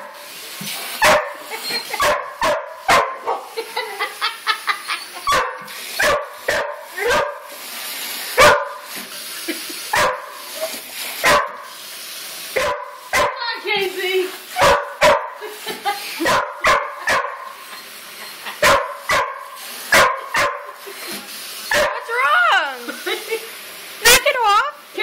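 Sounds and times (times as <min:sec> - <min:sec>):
hose water running into bucket: 0:00.0 - 0:25.0
dog barking: 0:01.0 - 0:01.4, 0:02.0 - 0:03.5, 0:05.3 - 0:07.5, 0:08.4 - 0:08.8, 0:09.9 - 0:10.4, 0:11.2 - 0:11.7, 0:12.6 - 0:13.4, 0:14.6 - 0:15.4, 0:16.2 - 0:17.5, 0:18.6 - 0:20.7, 0:21.7 - 0:22.0
dog yipping: 0:01.0 - 0:03.4, 0:05.0 - 0:07.4, 0:14.6 - 0:15.3.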